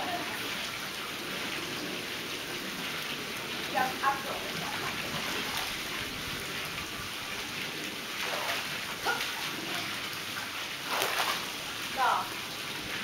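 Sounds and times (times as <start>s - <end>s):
water spilling into pool: 0.0s - 13.0s
swimmers splashing: 4.4s - 6.1s, 8.1s - 12.2s.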